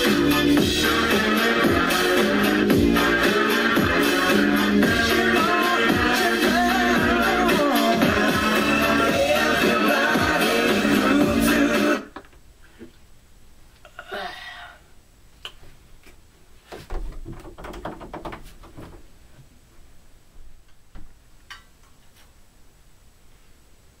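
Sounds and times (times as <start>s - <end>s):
soft knocks and clicks: 16.7s - 19.0s
thuds: 16.7s - 19.1s.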